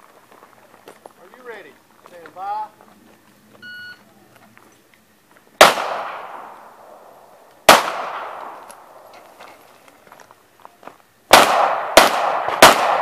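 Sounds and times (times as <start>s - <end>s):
pistol shots with echo: 5.6s - 9.1s, 11.3s - 13.0s.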